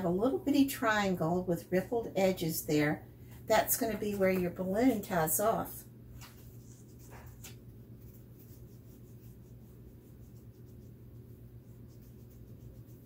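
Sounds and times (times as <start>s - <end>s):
low electrical hum: 0.0s - 13.0s
pencil scratching on paper: 8.1s - 13.0s.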